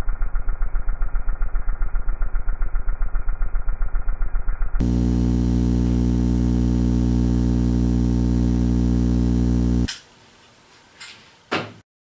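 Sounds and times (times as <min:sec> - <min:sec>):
transformer mains hum: 0:04.8 - 0:10.6.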